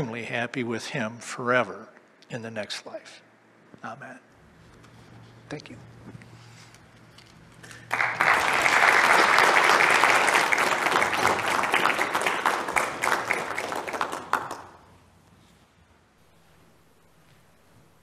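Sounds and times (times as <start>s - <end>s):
congregation applauding: 7.6s - 15.0s.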